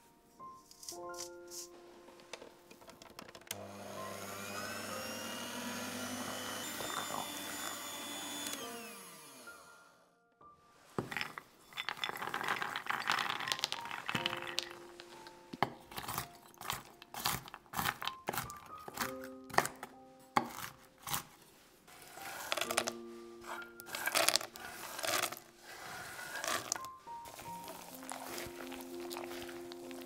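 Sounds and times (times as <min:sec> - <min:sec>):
electric hand mixer running: 0:03.5 - 0:10.0, 0:22.0 - 0:29.6
nuts rattling onto wooden board: 0:11.0 - 0:14.7
knife chopping on board: 0:20.4 - 0:21.3.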